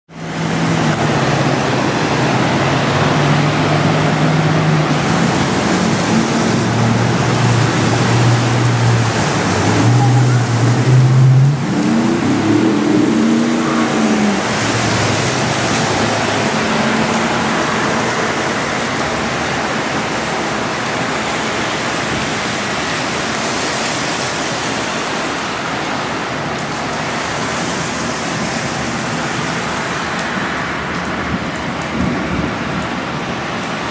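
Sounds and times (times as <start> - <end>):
rushing water: 0.1 - 33.9
vehicles driving through flood water: 0.1 - 33.9
engine revving: 0.2 - 19.1.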